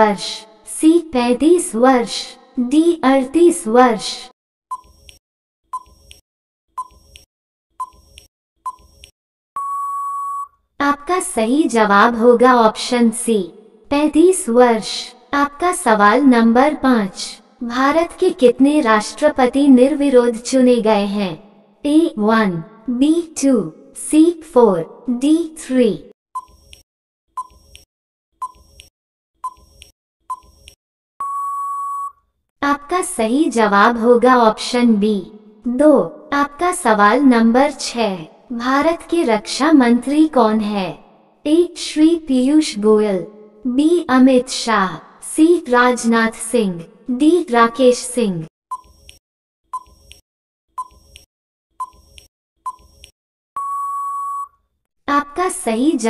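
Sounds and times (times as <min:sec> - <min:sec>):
electronic timer beeps: 0:04.7 - 0:05.0, 0:05.7 - 0:06.1, 0:06.8 - 0:07.2, 0:07.8 - 0:09.0, 0:09.6 - 0:10.5, 0:26.4 - 0:27.8, 0:28.4 - 0:32.2, 0:48.7 - 0:49.1, 0:49.7 - 0:50.1, 0:50.8 - 0:51.2, 0:51.8 - 0:54.6.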